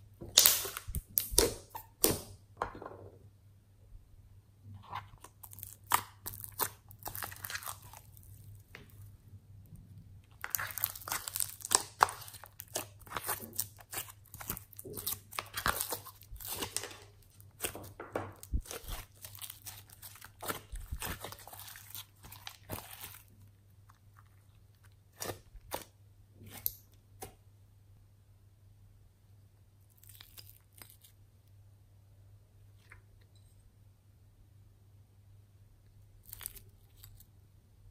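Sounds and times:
slime crackling and popping: 0.3s - 2.3s, 5.3s - 8.9s, 10.3s - 23.4s.

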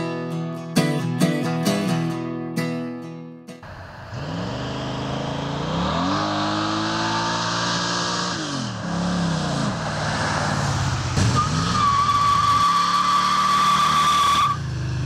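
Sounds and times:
truck engine accelerating: 3.6s - 15.0s.

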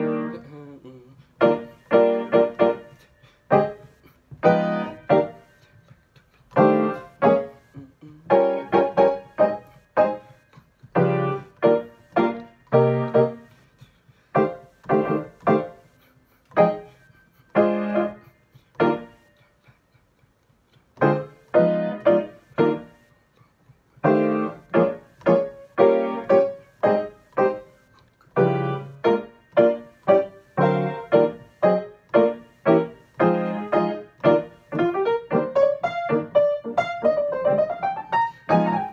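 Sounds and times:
grand piano playing: 0.0s - 0.5s, 1.4s - 3.8s, 4.4s - 5.5s, 6.6s - 7.7s, 8.3s - 10.3s, 10.9s - 13.5s, 14.4s - 15.8s, 16.6s - 18.2s, 21.0s - 23.0s, 24.0s - 27.8s, 28.4s - 38.9s.

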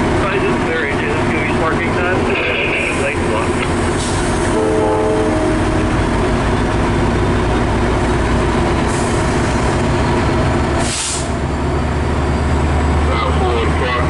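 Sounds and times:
diesel locomotive engine rumble: 0.0s - 14.0s
short hisses: 10.8s - 11.4s.

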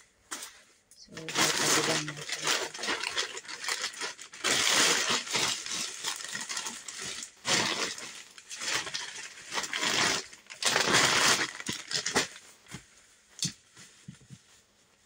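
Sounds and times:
plastic bag rustling: 1.1s - 12.8s.

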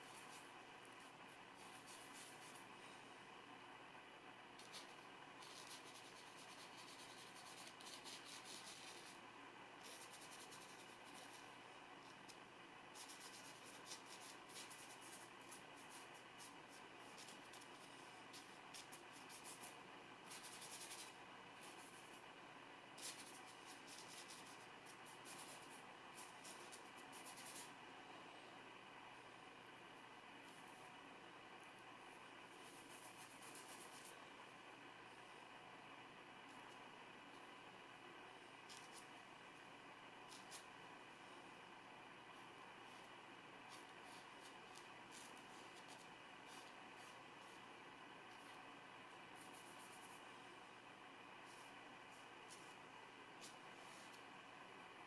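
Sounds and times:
paint brush scrubbing on paper: 0.0s - 2.7s, 4.6s - 9.2s, 9.8s - 11.6s, 12.9s - 22.2s, 23.0s - 27.8s, 32.4s - 34.2s, 40.3s - 40.7s, 42.8s - 47.7s, 49.3s - 50.3s, 51.4s - 52.8s, 53.4s - 54.2s.

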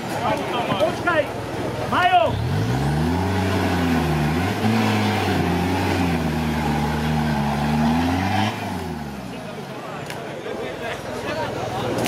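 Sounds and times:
off-road vehicle engine revving: 1.8s - 9.7s
tyres churning through mud: 2.3s - 9.7s.

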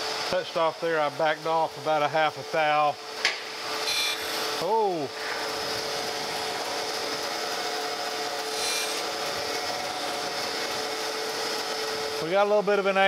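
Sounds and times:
grinding wheel hiss: 0.6s - 12.9s
spindle hum: 3.6s - 12.2s.

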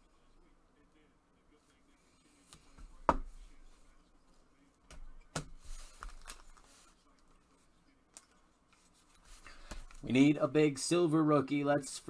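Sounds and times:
trading cards handled: 5.4s - 7.4s.

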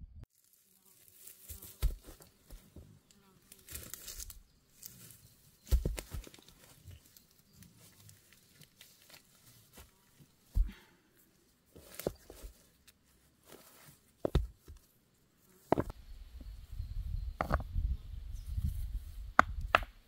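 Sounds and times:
grass rustling: 0.3s - 10.8s, 11.4s - 16.0s
stones knocking together: 5.6s - 6.6s, 14.2s - 14.8s, 15.7s - 15.9s, 17.4s - 17.7s.

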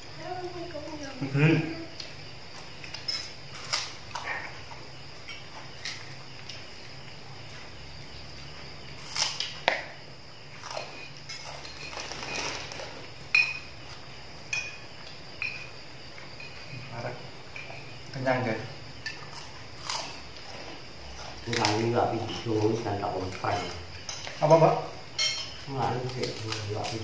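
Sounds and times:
plates and spoons clinking: 2.9s - 3.8s, 10.6s - 13.9s, 14.5s - 16.9s, 21.6s - 27.0s.

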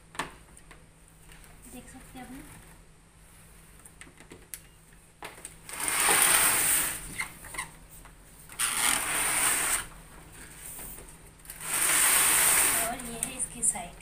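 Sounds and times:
plastic air cooler scraping on floor: 5.7s - 7.7s, 8.6s - 9.9s, 10.7s - 13.4s.

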